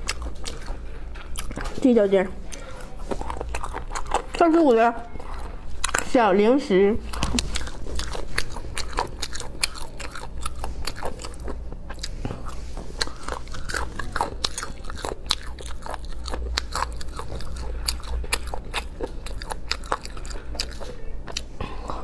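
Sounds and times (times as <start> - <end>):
chewing and biting: 0.0 - 6.2, 7.0 - 22.0
sharp mouth clicks and crunches: 2.5 - 4.6, 7.1 - 22.0.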